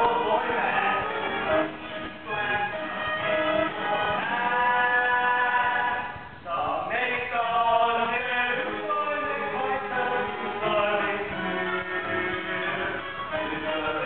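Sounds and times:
men singing together: 0.0s - 6.2s, 7.0s - 11.8s
instrumental backing music: 0.0s - 6.3s, 8.1s - 14.0s.

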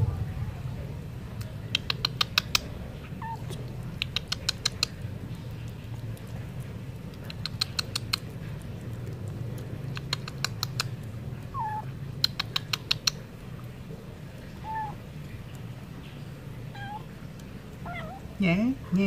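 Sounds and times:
cat lapping and chewing food: 0.1s - 19.0s
faint cat calls: 3.1s - 3.6s, 11.5s - 12.0s, 14.4s - 15.1s, 16.6s - 17.2s, 17.8s - 18.4s.

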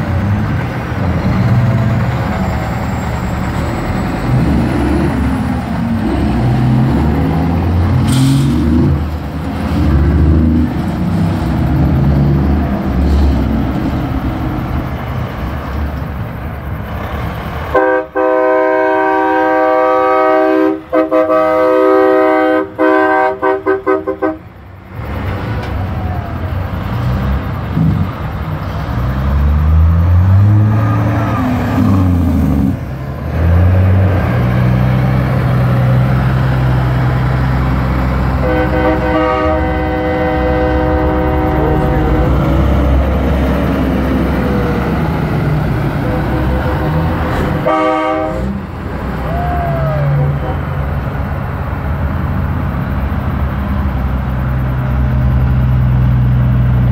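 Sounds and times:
diesel truck engines passing: 0.0s - 56.9s
truck air horn blasts: 17.7s - 24.6s, 38.3s - 42.8s, 45.9s - 48.6s, 50.0s - 50.9s.

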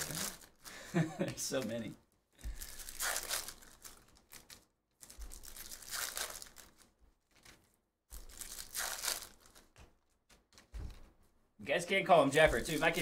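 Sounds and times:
cards clicking and rustling: 2.6s - 11.1s, 12.4s - 13.0s.

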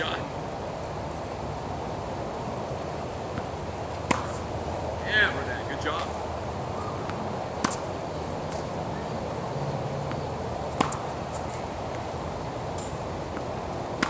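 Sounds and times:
outdoor background noise: 0.0s - 14.0s
tennis ball struck by racket: 3.3s - 4.5s, 6.8s - 8.8s, 10.0s - 14.0s.

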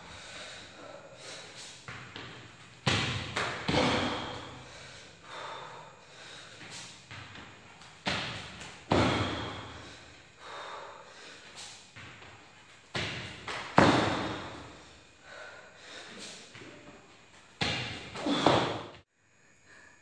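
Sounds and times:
hands and feet slapping floor mat: 11.4s - 14.7s.

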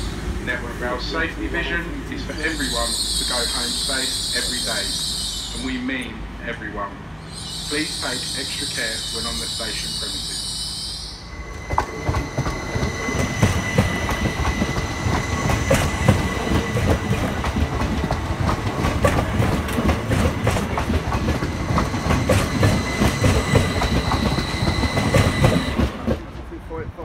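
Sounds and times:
high-pitched whine: 7.2s - 16.4s
train wheels clattering: 11.4s - 26.6s.

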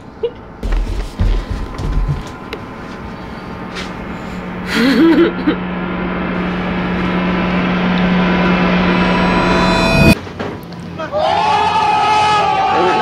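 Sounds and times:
droning suspense tone: 0.0s - 10.2s.

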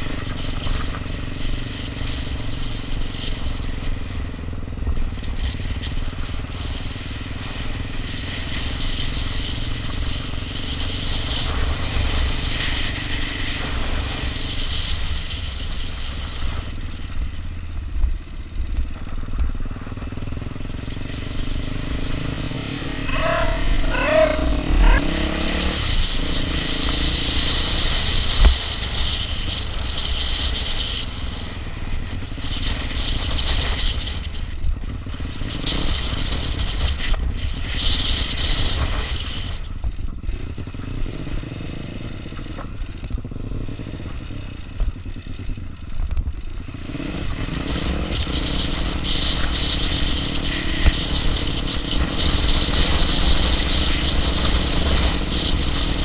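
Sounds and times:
motorcycle engine running: 0.0s - 56.0s
wind rushing over helmet: 22.2s - 25.9s.

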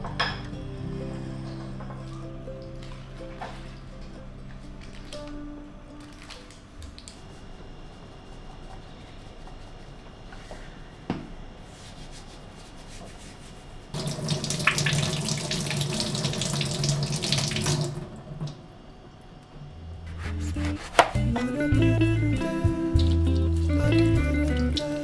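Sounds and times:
guitar music: 0.0s - 7.4s, 20.0s - 25.0s
kitchen tap running: 14.0s - 18.6s.

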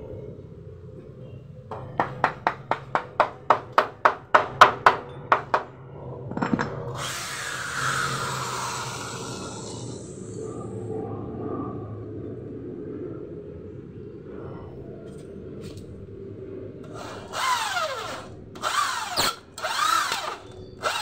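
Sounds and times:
electric drill whining: 16.8s - 21.0s.

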